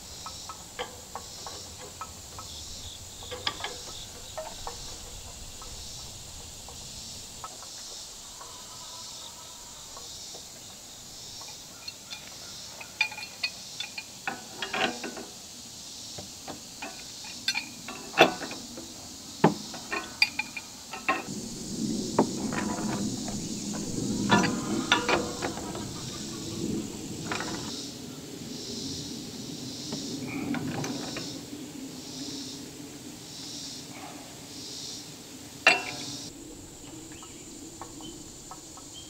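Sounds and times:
insects buzzing: 0.0s - 39.0s
wrench clinking on iron pipe: 0.2s - 5.8s, 11.4s - 15.2s, 16.8s - 18.6s, 19.8s - 21.3s, 35.7s - 36.1s.

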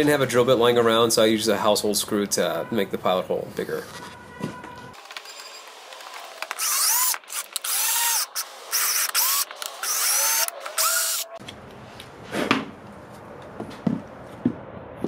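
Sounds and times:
cordless drill whining: 5.0s - 11.4s.

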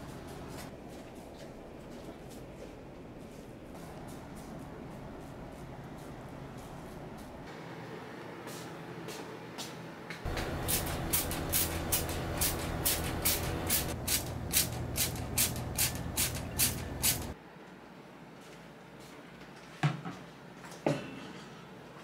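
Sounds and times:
spray bottle squirting: 10.3s - 17.4s
steady low rumble: 10.3s - 17.4s.

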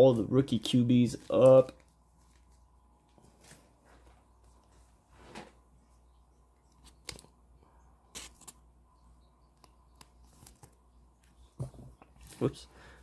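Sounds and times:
trading cards handled: 1.1s - 4.7s, 9.6s - 10.9s.

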